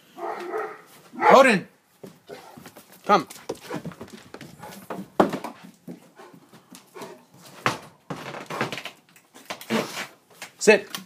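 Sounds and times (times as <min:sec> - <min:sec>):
dog barking: 0:00.2 - 0:01.5.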